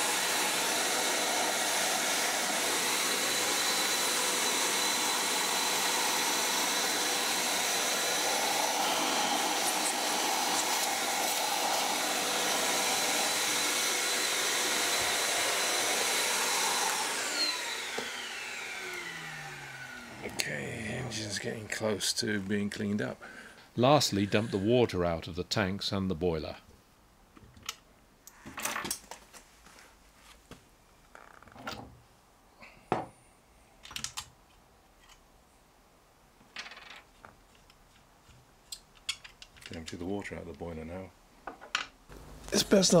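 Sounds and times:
vacuum cleaner running: 0:00.0 - 0:21.7, 0:42.1 - 0:43.0.

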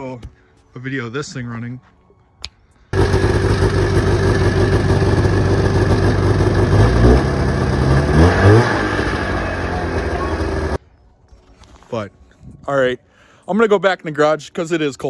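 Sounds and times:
snowmobile engine idling and revving: 0:02.9 - 0:10.8.

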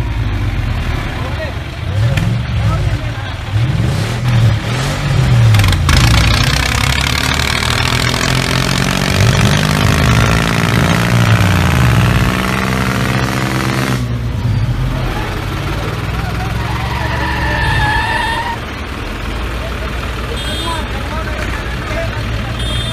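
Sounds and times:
vehicle engine running: 0:00.0 - 0:22.9
rough noisy layer: 0:02.0 - 0:19.7.

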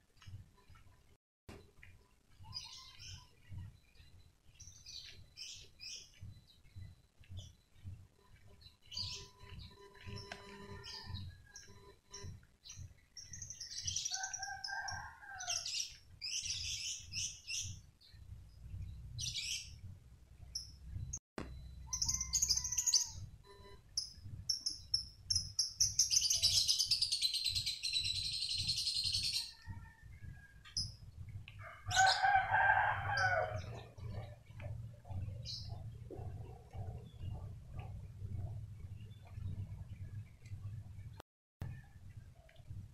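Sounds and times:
small birds chirping: 0:01.8 - 0:20.8, 0:23.9 - 0:32.4
rooster crowing: 0:14.1 - 0:15.7, 0:21.9 - 0:23.2, 0:31.6 - 0:33.8.

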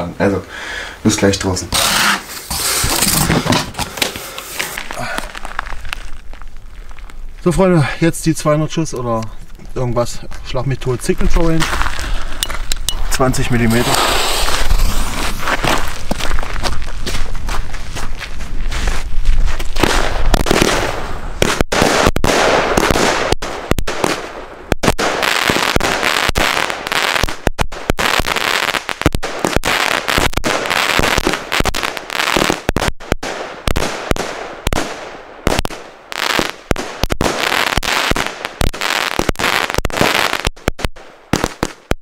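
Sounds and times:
fireworks launches and bursts: 0:01.7 - 0:07.1, 0:13.2 - 0:16.6, 0:19.7 - 0:42.0.

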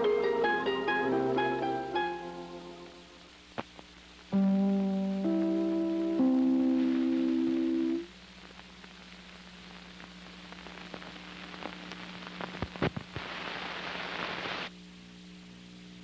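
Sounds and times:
low hum: 0:00.0 - 0:12.4
film hiss: 0:00.0 - 0:16.0
crackling clicks and pops: 0:03.2 - 0:04.4, 0:06.0 - 0:14.7.

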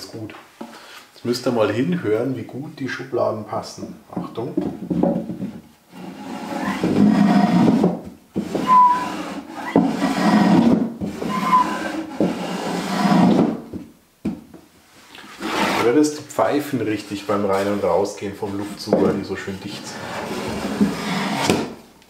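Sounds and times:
wooden drawer sliding: 0:05.3 - 0:13.7, 0:15.3 - 0:15.9, 0:17.5 - 0:21.8
air whistling from drawer: 0:06.3 - 0:07.6, 0:08.5 - 0:13.4.

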